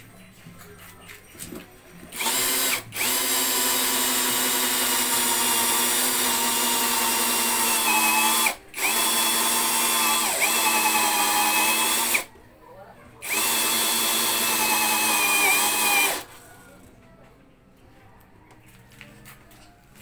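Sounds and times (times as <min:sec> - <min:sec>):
cordless drill whining: 0:02.1 - 0:12.3, 0:13.2 - 0:16.3.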